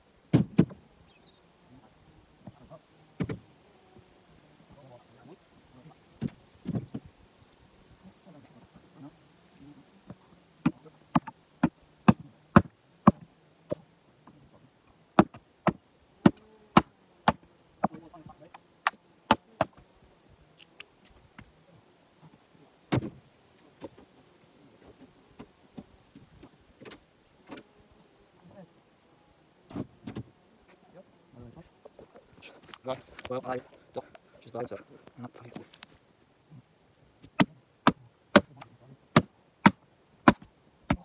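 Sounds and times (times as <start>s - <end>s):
axe chopping firewood: 0.3s - 0.8s, 10.6s - 13.2s, 15.2s - 18.0s, 37.2s - 41.0s.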